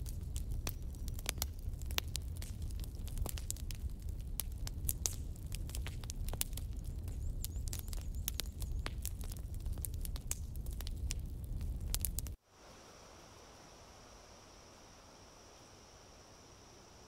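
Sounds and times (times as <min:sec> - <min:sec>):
fire crackling with sharp pops: 0:00.0 - 0:12.4.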